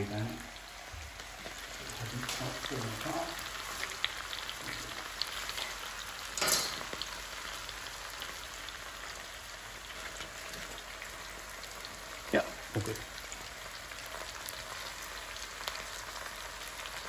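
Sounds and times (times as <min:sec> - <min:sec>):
vegetables sizzling in a wok: 0:00.0 - 0:17.0
small crackles: 0:00.4 - 0:12.0.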